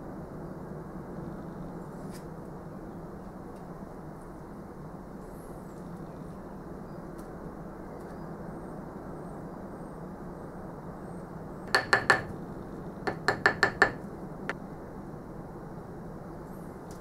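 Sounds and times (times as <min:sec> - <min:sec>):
wooden dowel tapping: 0:11.7 - 0:12.3, 0:13.1 - 0:14.0.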